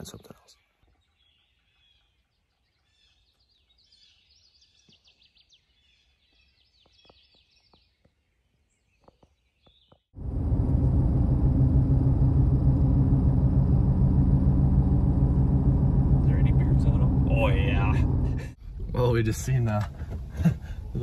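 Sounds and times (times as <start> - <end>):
songbirds chirping: 0.0 - 10.1
truck cab road rumble: 10.2 - 21.0.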